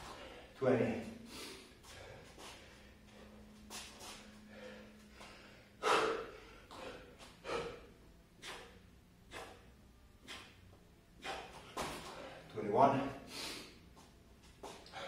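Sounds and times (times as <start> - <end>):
man gasping and exhaling: 1.2 - 3.4, 4.1 - 10.6, 11.2 - 12.5, 14.7 - 15.0.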